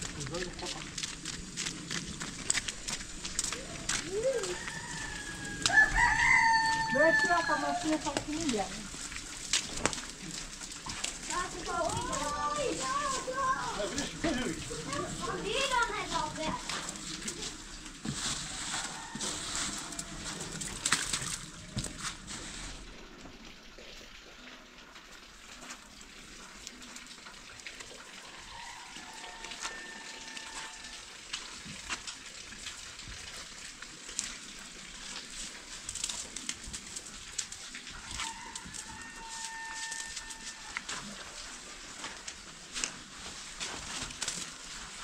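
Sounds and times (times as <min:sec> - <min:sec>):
hands brushing snow off car: 0:11.3 - 0:14.0, 0:18.0 - 0:20.6.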